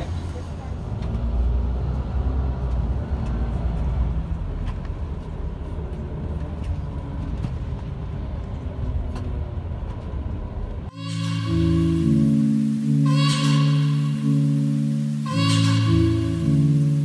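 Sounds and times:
bus engine and road rumble: 0.0s - 10.9s.

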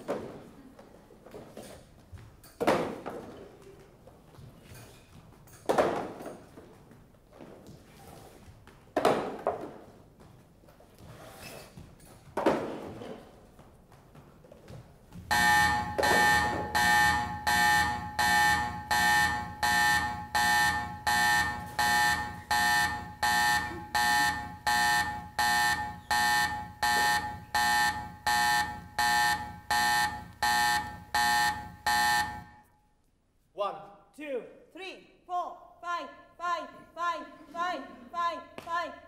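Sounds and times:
pulsing ringing alarm: 15.3s - 32.7s.

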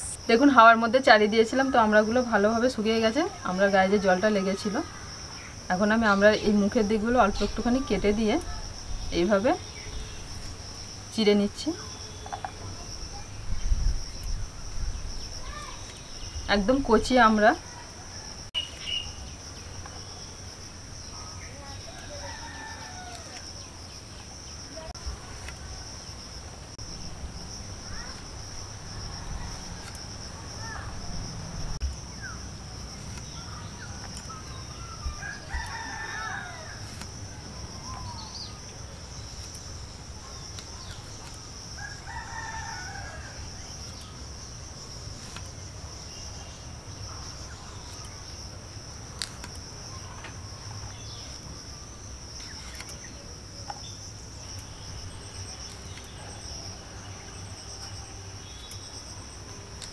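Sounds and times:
high insect drone: 0.0s - 59.9s
rooster crowing: 21.9s - 23.4s, 35.0s - 36.9s, 41.8s - 43.7s.

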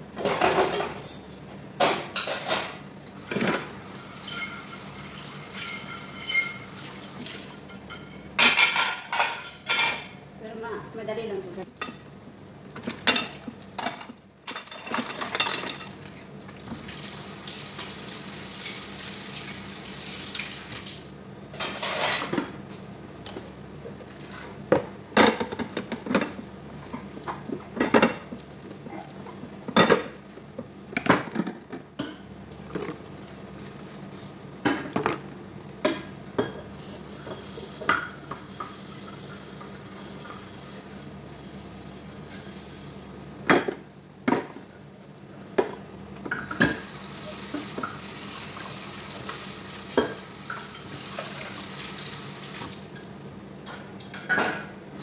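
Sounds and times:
pots and dishes clanking: 0.2s - 6.8s, 7.6s - 10.2s, 12.8s - 16.1s, 24.8s - 30.2s, 45.6s - 48.0s, 53.7s - 54.8s.

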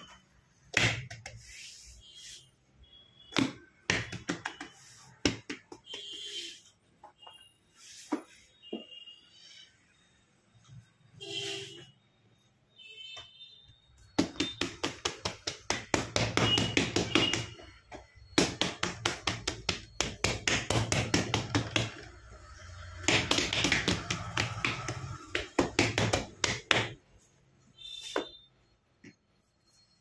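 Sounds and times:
hands patting dough: 0.7s - 1.9s, 3.3s - 6.3s, 14.0s - 22.2s, 22.9s - 27.0s.

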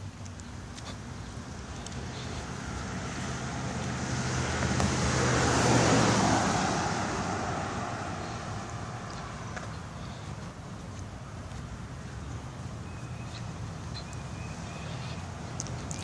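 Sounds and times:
pickup truck driving past: 2.2s - 9.6s.

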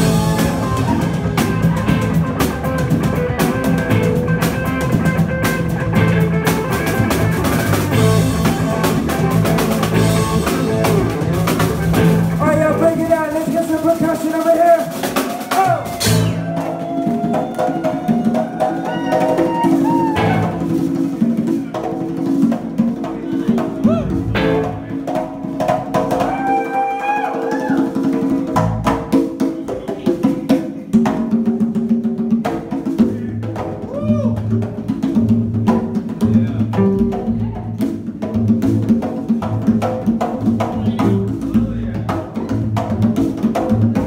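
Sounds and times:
guitar bending melody lines: 0.0s - 13.4s, 15.8s - 26.3s, 35.8s - 37.4s, 40.0s - 44.0s
hand drum percussion: 0.0s - 44.0s
live band jamming: 0.0s - 44.0s.

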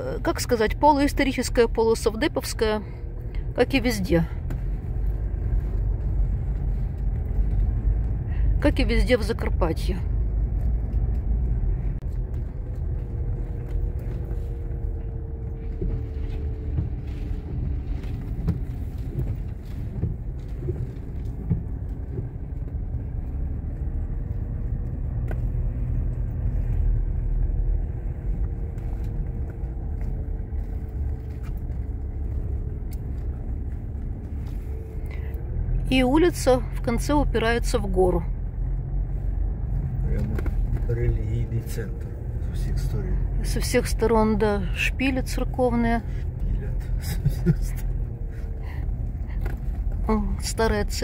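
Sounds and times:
car engine and tyres rumbling: 0.0s - 51.0s.

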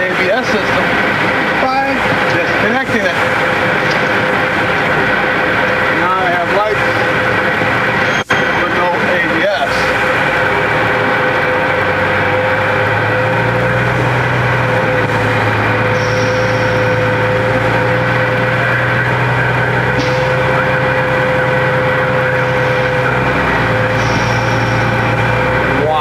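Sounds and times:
vehicle engine and road noise: 0.0s - 26.0s
short high squeak: 8.0s - 8.7s.

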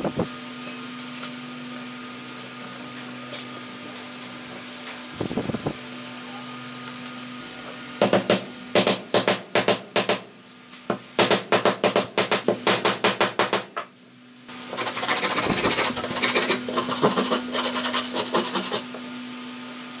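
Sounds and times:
hammer striking wood: 8.0s - 10.2s, 11.2s - 13.7s
sandpaper rasping on wood: 14.7s - 18.9s.

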